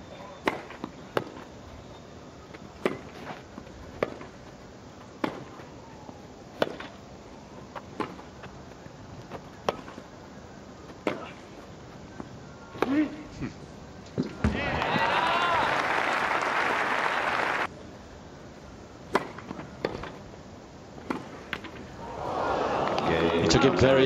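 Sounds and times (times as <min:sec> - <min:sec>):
tennis racquets hitting ball: 0:00.4 - 0:01.4, 0:02.8 - 0:04.4, 0:05.2 - 0:05.7, 0:06.5 - 0:07.0, 0:07.8 - 0:08.4, 0:09.3 - 0:10.0, 0:19.1 - 0:20.2.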